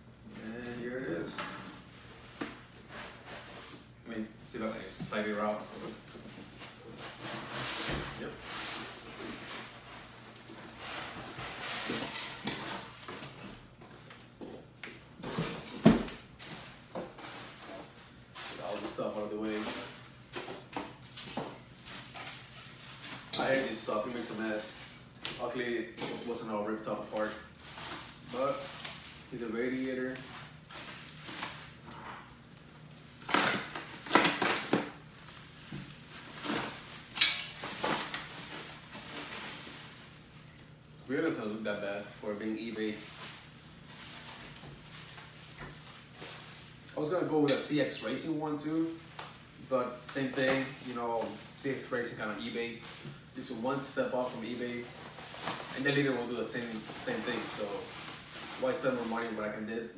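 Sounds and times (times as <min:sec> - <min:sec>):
cardboard and styrofoam rustling: 0:04.5 - 0:14.0, 0:15.2 - 0:40.8, 0:42.2 - 0:59.5
plastic wrap crinkling: 0:16.1 - 0:41.0, 0:42.1 - 0:59.5.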